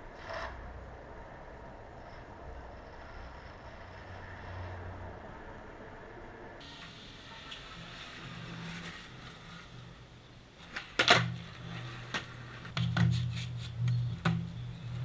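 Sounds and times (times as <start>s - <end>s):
skateboard wheels rolling: 6.6s - 15.0s
skateboard wooden clacks: 10.7s - 15.0s.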